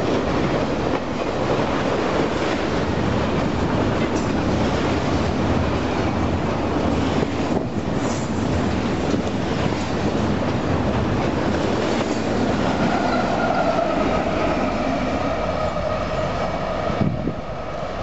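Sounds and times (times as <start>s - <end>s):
train wheels rumbling on rail: 0.0s - 18.0s
thin steady squeal: 12.7s - 17.0s.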